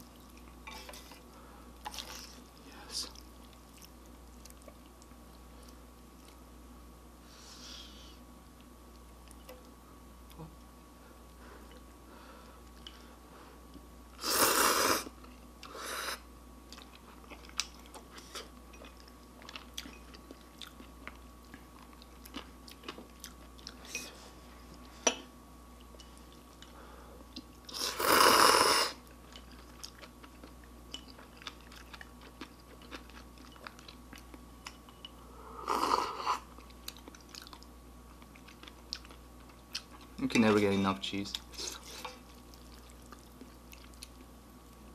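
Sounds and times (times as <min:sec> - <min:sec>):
soft chewing: 0:00.0 - 0:06.5, 0:08.6 - 0:13.9, 0:16.6 - 0:25.1, 0:25.7 - 0:27.8, 0:29.0 - 0:40.4, 0:41.2 - 0:44.9
person slurping noodles: 0:14.2 - 0:15.1, 0:27.7 - 0:29.0.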